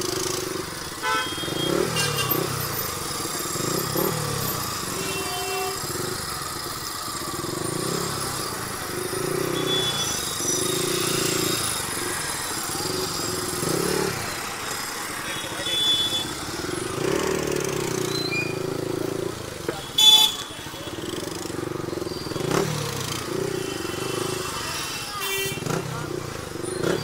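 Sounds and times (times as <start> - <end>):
motorcycle engine running: 0.0 - 27.0
vehicle horn beeps: 1.0 - 2.7, 4.9 - 5.9, 9.2 - 11.5, 15.2 - 16.5, 19.7 - 21.2, 23.3 - 25.9.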